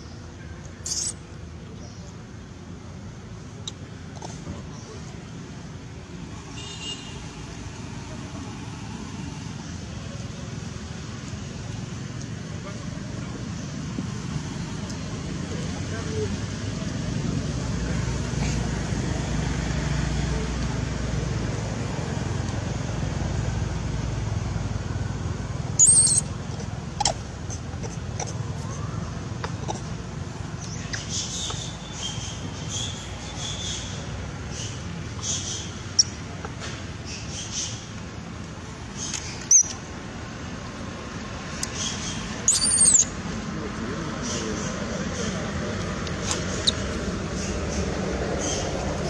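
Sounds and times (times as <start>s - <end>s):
baby monkey squeaking: 0.8s - 1.2s, 25.8s - 26.3s, 39.5s - 39.8s, 41.8s - 43.1s, 46.4s - 46.9s.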